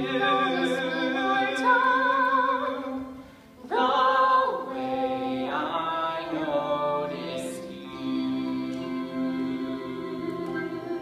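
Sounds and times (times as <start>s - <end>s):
musical accompaniment: 0.0s - 11.0s
voices singing with vibrato: 0.0s - 11.0s.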